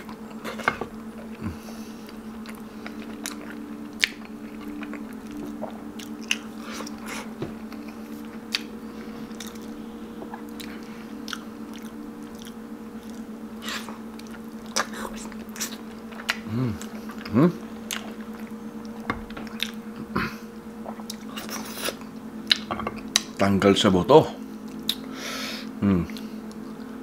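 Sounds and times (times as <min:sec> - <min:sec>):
chewing and biting food: 0:00.0 - 0:20.1.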